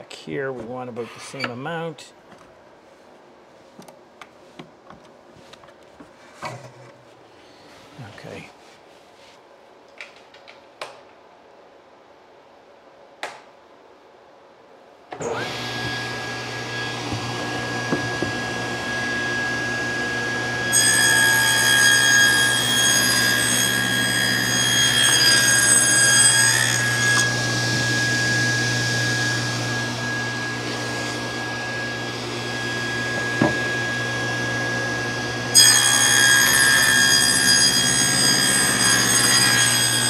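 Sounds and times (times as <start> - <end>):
table saw whining: 15.2 - 40.0
saw blade cutting board: 20.7 - 31.6, 35.6 - 40.0.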